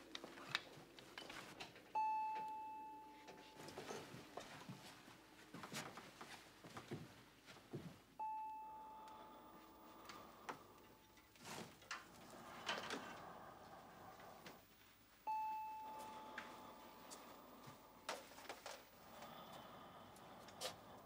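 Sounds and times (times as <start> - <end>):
bell-like chime ringing: 2.0 - 4.0, 8.2 - 9.6, 15.2 - 17.1
faint knocks and creaks: 9.9 - 15.1.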